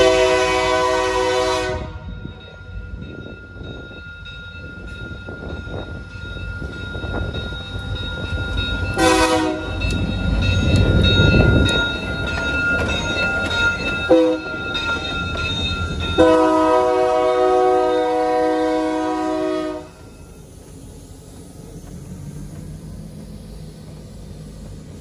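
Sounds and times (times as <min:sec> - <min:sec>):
train air horn blasts: 0:00.0 - 0:02.1, 0:09.0 - 0:09.7, 0:16.2 - 0:20.0
diesel locomotive engine rumble: 0:00.0 - 0:25.0.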